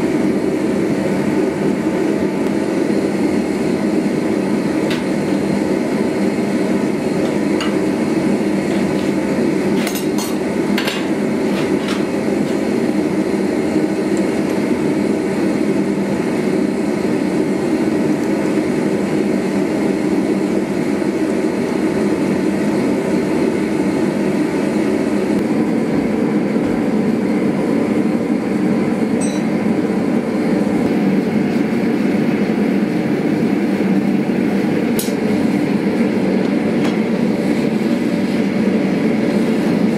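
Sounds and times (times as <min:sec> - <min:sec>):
gas forge rushing: 0:00.0 - 0:39.9.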